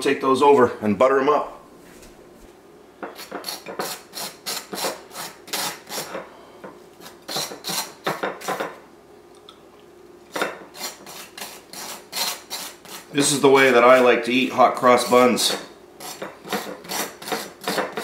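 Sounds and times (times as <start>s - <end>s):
knife scraping butter on toast: 3.1s - 6.2s, 10.3s - 14.0s, 16.0s - 18.0s.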